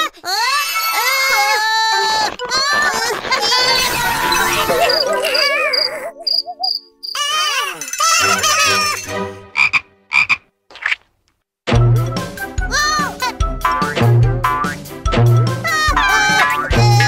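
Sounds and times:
croaky gibberish cartoon voices: 0:00.3 - 0:09.0, 0:15.6 - 0:17.0
wobbling warble tone: 0:04.3 - 0:06.9.

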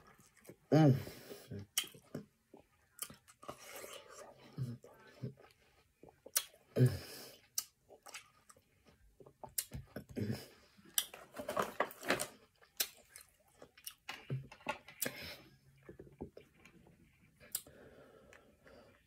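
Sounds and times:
mouth clicks and smacks: 0:01.6 - 0:03.3, 0:06.0 - 0:06.8, 0:07.4 - 0:08.5, 0:12.8 - 0:15.2
wet chewing of watermelon: 0:01.6 - 0:06.8.

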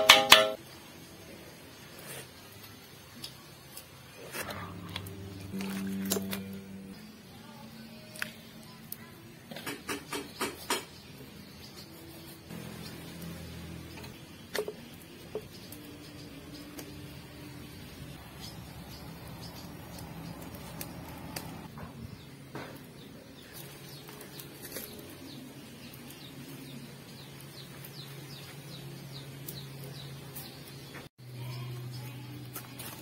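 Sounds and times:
birds chirping: 0:09.9 - 0:32.5.

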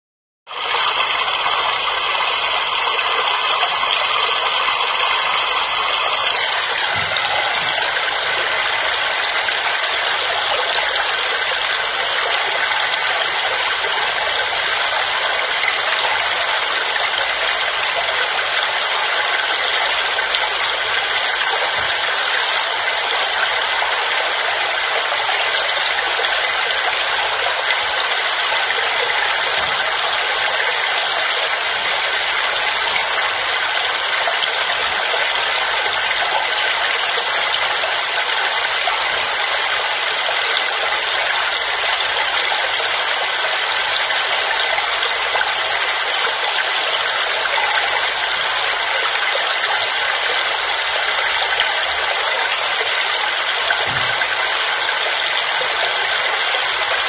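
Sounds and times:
waterfall rushing: 0:00.6 - 0:24.1, 0:43.0 - 0:57.0.

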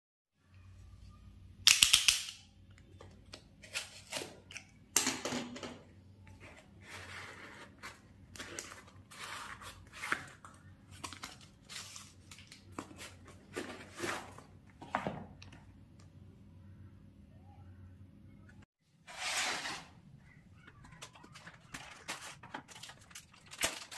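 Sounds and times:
cardboard envelope rustling and tearing: 0:06.8 - 0:14.6, 0:20.7 - 0:23.9.

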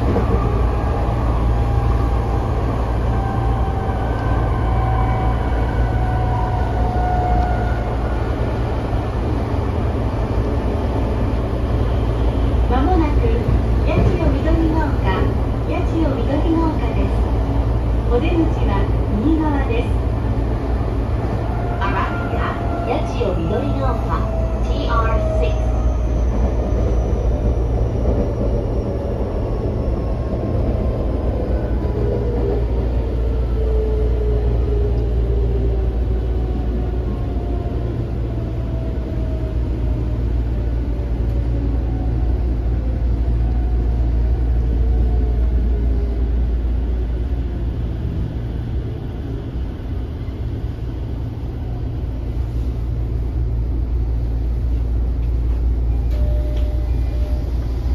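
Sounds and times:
wheels rumbling on rail: 0:00.0 - 0:57.9.

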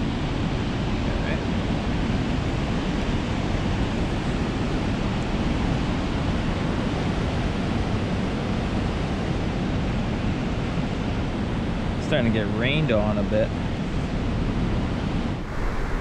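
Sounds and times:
wind: 0:00.0 - 0:16.0
ocean surf breaking: 0:15.4 - 0:16.0.

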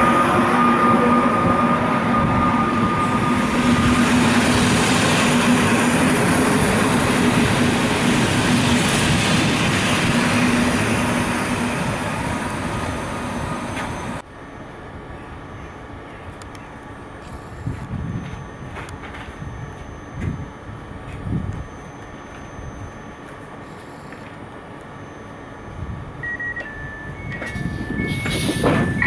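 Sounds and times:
train coaches rumbling past: 0:00.0 - 0:17.2, 0:26.0 - 0:29.0
locomotive high tone: 0:00.0 - 0:29.0.

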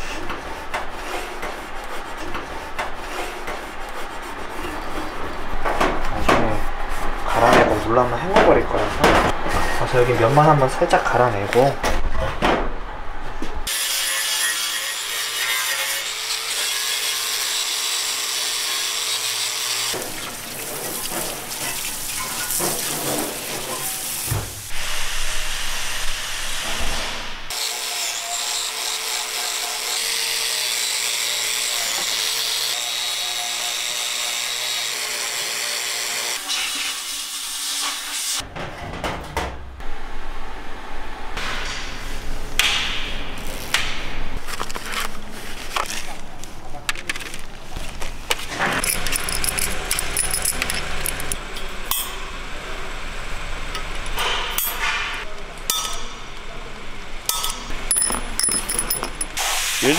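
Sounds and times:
angle grinder grinding metal: 0:48.6 - 0:51.4.

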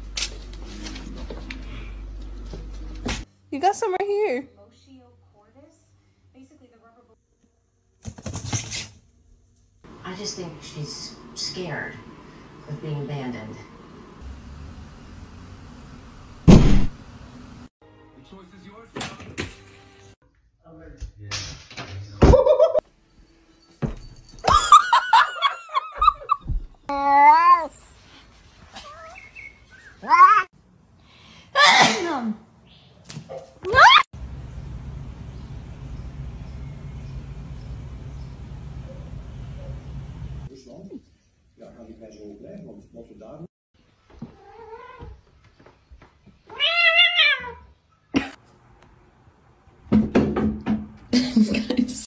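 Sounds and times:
cats meowing: 0:30.0 - 0:30.5, 0:46.5 - 0:47.7.

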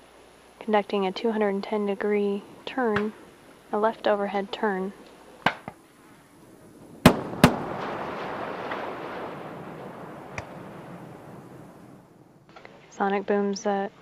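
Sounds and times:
sonic booms: 0:06.2 - 0:12.5.

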